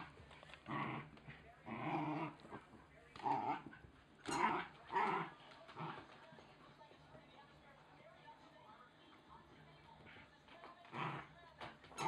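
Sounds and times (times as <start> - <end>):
puppy growling: 0.0 - 6.2, 10.8 - 12.0.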